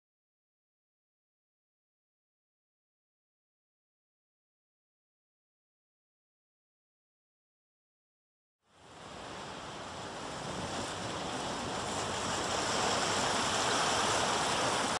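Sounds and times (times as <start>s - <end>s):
steady rushing noise: 8.7s - 15.0s.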